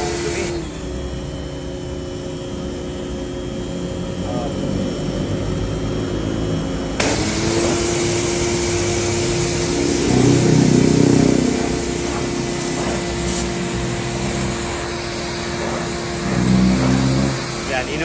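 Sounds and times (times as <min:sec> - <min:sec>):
washer motor hum: 0:00.0 - 0:18.0
pressure washer spray hiss: 0:07.0 - 0:18.0.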